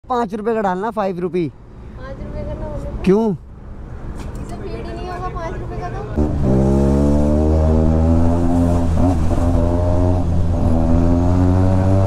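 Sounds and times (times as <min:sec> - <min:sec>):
motorcycle engine cruising: 0:03.6 - 0:12.0.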